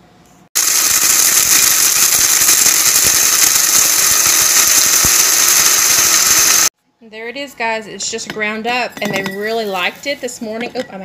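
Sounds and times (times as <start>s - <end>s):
blender grinding kernels: 0.6s - 6.7s.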